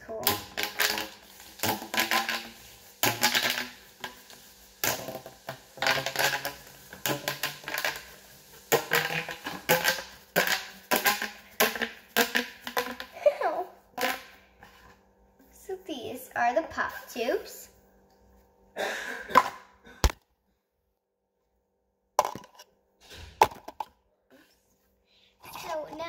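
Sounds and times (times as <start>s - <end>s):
plastic pop tubes clicking: 0.2s - 13.1s, 14.0s - 14.3s.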